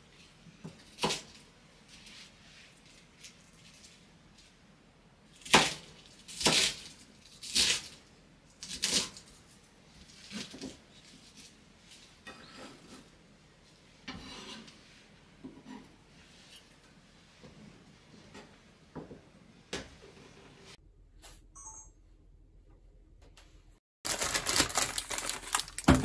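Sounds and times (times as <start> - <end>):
knife cutting cabbage on board: 5.4 - 8.0.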